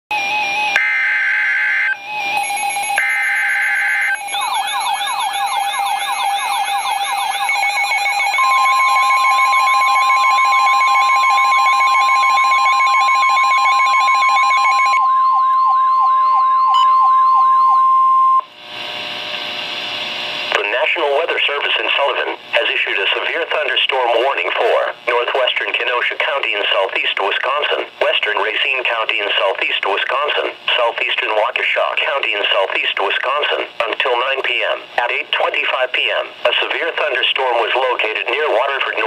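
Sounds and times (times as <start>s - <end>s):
alternating data tones: 0.2s - 18.4s
electronic siren sweeps: 3.0s - 18.4s
steady alert tone: 12.8s - 18.4s.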